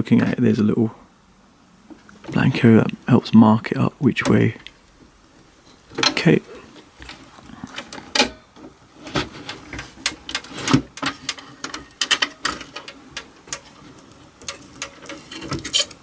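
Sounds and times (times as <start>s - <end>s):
clicks taps and rustling: 4.2s - 16.0s.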